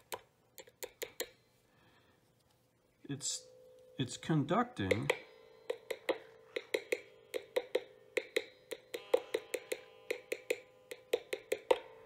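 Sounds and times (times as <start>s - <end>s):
metal tool tapping guitar bridge: 4.8s - 12.0s.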